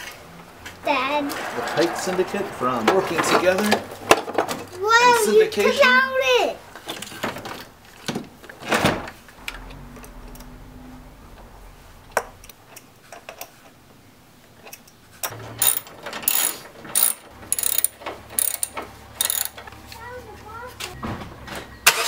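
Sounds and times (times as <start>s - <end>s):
ratchet wrench clicking: 15.6s - 19.6s.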